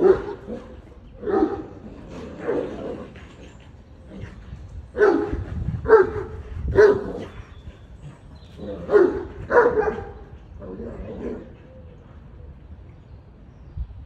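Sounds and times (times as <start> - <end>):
dogs barking deeply: 0.0 - 3.4, 4.0 - 11.8.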